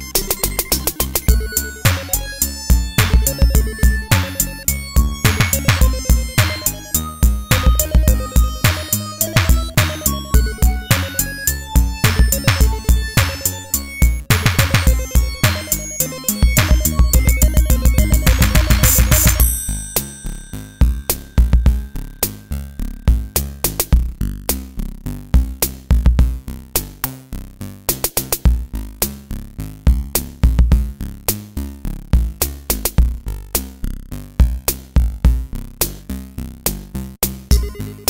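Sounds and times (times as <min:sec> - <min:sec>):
chiptune electronic music: 0:00.0 - 0:24.2, 0:37.5 - 0:38.0.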